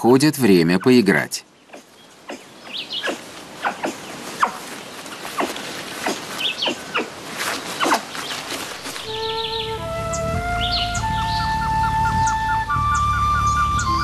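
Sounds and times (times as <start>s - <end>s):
monkeys squeaking and chirping: 1.6s - 11.4s
flute-like melody: 8.9s - 14.0s.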